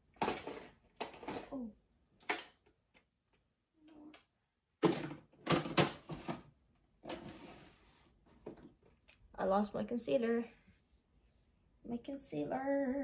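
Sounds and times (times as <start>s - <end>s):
makeup items clattering: 0.1s - 2.7s, 4.8s - 6.4s
plastic drawer sliding: 7.0s - 7.9s.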